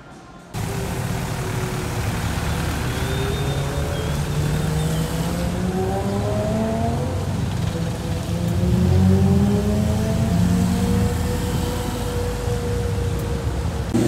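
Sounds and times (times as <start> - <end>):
constant hiss: 0.5 - 5.6
car engine accelerating: 0.6 - 14.0.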